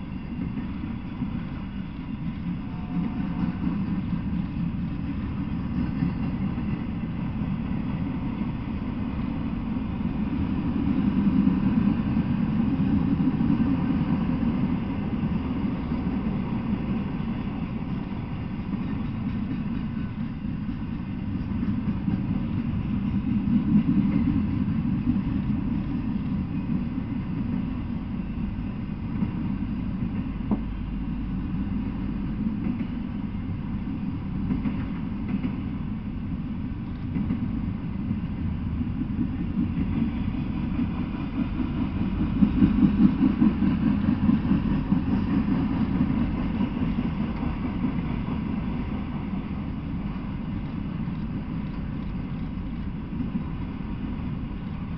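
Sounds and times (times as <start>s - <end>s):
freight train wheels rumbling: 0.0s - 54.9s.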